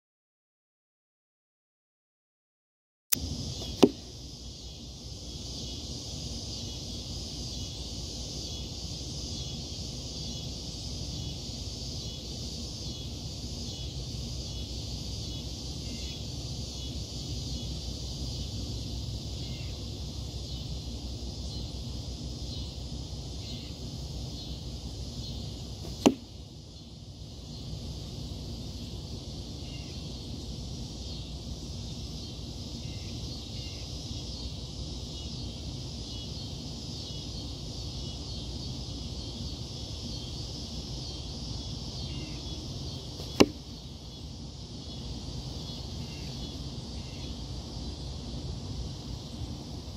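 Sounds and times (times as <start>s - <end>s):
high even hum: 3.1s - 49.9s
arrow striking foam target: 3.6s - 4.1s, 25.8s - 26.3s, 43.2s - 43.6s.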